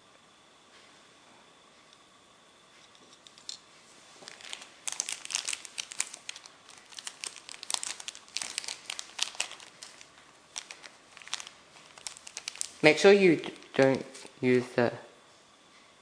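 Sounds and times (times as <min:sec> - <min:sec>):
plastic packaging crinkling: 0:04.2 - 0:14.8.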